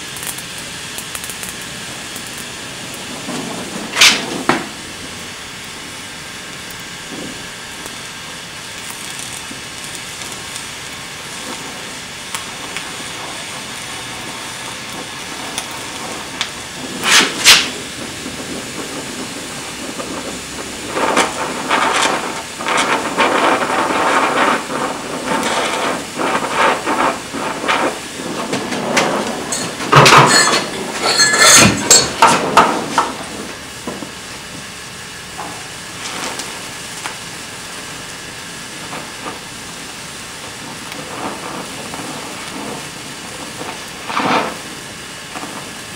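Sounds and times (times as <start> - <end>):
weld crackling and spitting: 0.0 - 45.9
welding torch hissing: 0.0 - 45.9.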